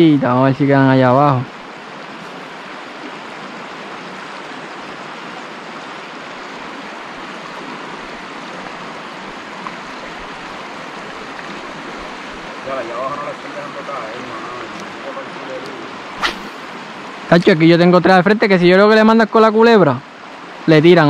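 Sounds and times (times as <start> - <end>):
river water running over rocks: 0.0 - 21.0.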